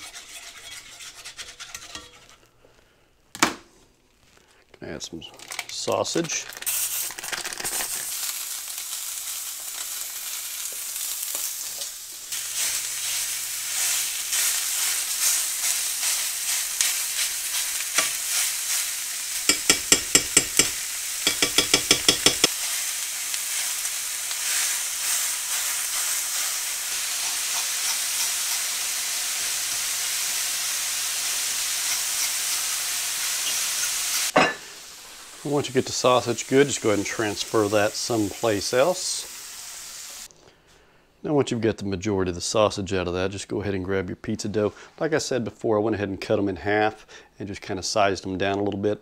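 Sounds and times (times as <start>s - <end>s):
utensil stirring meat: 0.0s - 2.5s, 10.7s - 34.4s
sausage sizzling in skillet: 5.5s - 40.3s
utensil tapping pan: 19.4s - 22.6s.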